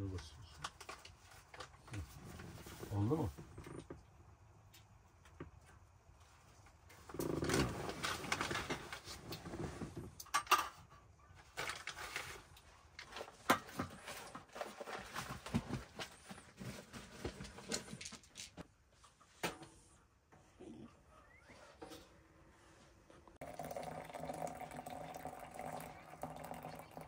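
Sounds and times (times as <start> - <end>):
coffee mugs and kettle clinking: 23.4 - 27.0.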